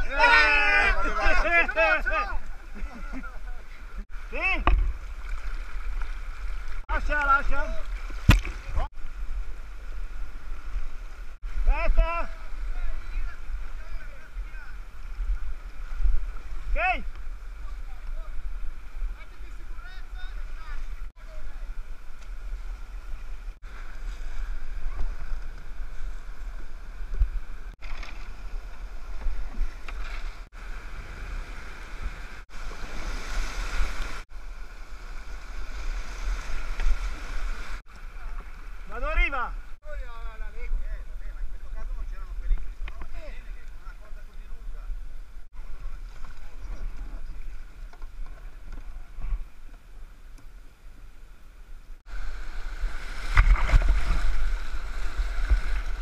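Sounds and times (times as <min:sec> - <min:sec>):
whitewater rushing and splashing: 0:00.0 - 0:39.4, 0:52.1 - 0:56.0
water lapping against kayaks: 0:00.0 - 0:56.0.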